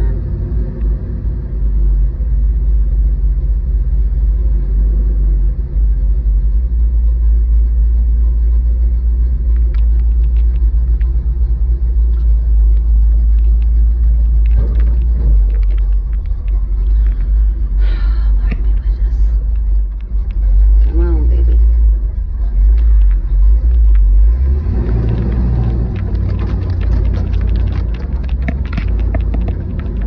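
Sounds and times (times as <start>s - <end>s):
truck engine deep rumble: 0.0s - 30.0s
clicks and rattles: 9.5s - 11.2s, 12.1s - 17.8s, 24.8s - 30.0s.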